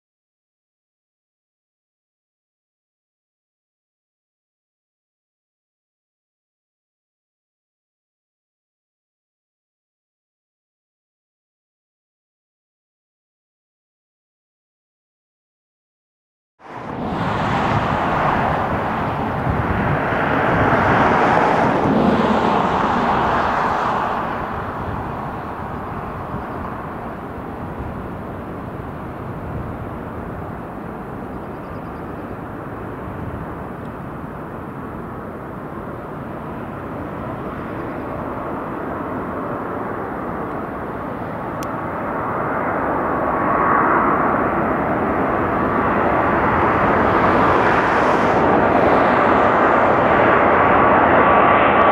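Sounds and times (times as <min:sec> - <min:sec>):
jet airliner whine on approach: 0:16.6 - 0:51.9.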